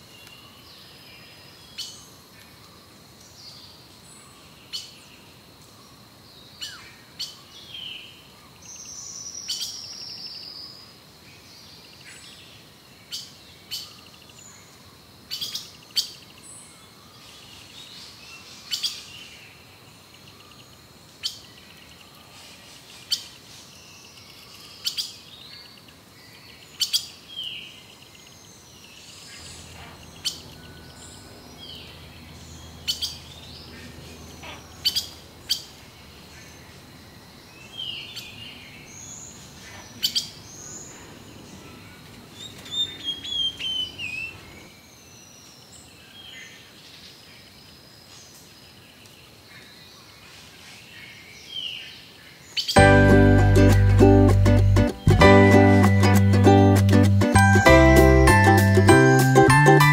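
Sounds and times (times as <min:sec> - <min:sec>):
birds calling and chirping: 0:15.3 - 0:57.2.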